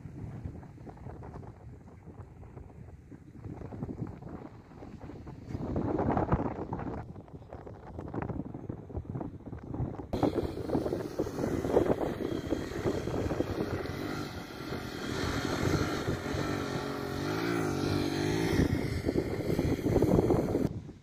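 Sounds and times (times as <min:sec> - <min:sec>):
wind noise on microphone: 0:00.0 - 0:21.0
motorcycle engine running: 0:10.2 - 0:20.7.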